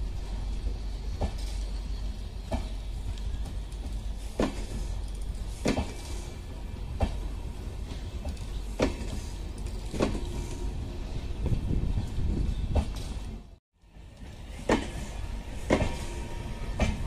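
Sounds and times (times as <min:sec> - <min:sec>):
train wheels rumbling on rails: 0:00.0 - 0:17.0
metallic clack at rail joints: 0:02.4 - 0:06.2, 0:07.8 - 0:10.4, 0:14.1 - 0:16.1.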